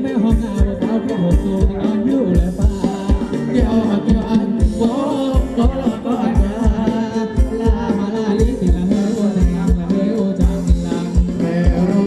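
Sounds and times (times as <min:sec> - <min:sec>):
person singing: 0:00.0 - 0:12.0
quick steady drum beat: 0:00.0 - 0:12.0.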